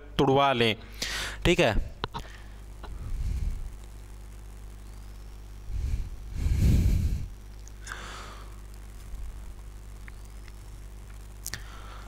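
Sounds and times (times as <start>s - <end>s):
low electrical hum: 0.0s - 12.0s
breath-like rush of air: 3.0s - 3.7s, 5.7s - 8.6s.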